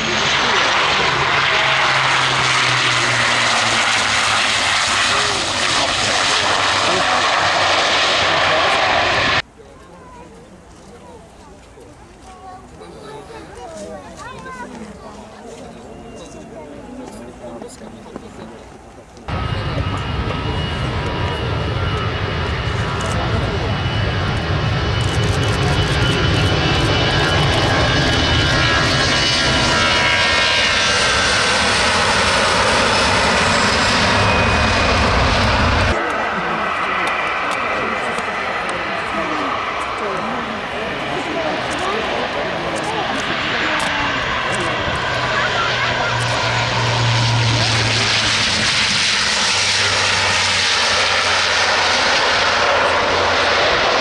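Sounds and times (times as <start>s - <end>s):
jet engines rumbling and whining: 0.0s - 54.0s
low propeller drone: 0.0s - 54.0s
turboprop airliner landing roar: 0.0s - 54.0s.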